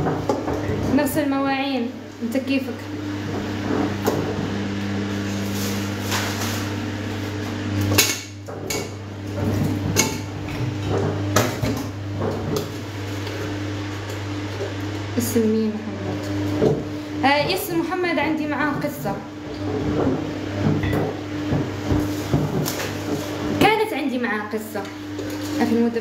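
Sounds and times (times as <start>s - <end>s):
low hum: 0.0s - 16.3s.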